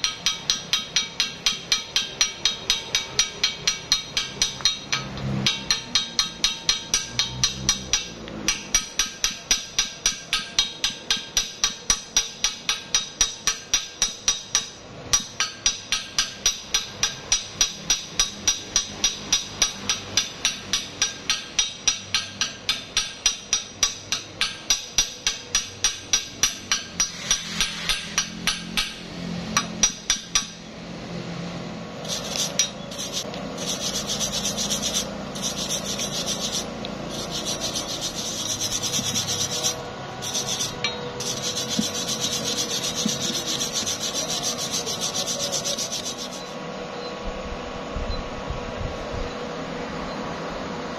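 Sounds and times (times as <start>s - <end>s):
hammer tapping on weld: 0.0s - 29.0s, 29.6s - 30.6s, 32.1s - 46.6s
wire brush scrubbing metal: 26.7s - 28.5s, 32.0s - 46.6s.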